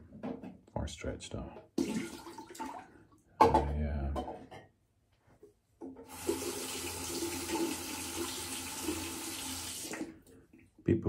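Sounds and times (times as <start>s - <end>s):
water tap running into sink: 1.8s - 2.8s, 6.1s - 10.2s.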